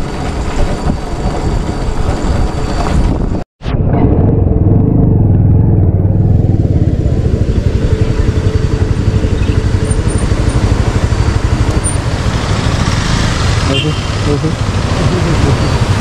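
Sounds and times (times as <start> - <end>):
motorcycle engine idling: 5.3 - 12.4.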